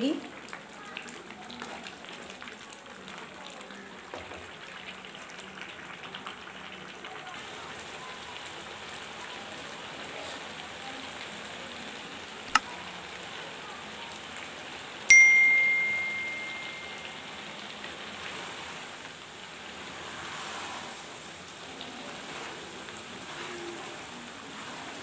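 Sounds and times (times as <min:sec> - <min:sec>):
milk bubbling in a pan: 0:00.2 - 0:15.1, 0:17.5 - 0:25.0
bell-like ding: 0:15.1 - 0:17.2.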